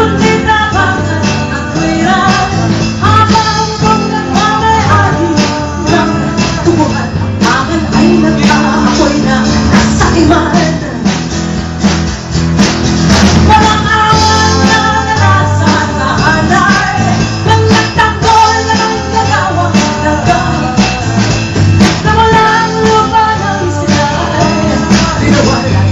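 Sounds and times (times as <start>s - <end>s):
women singing pop-rock song: 0.0s - 11.4s, 13.3s - 25.9s
acoustic guitar: 0.0s - 25.9s
drums: 0.0s - 25.9s.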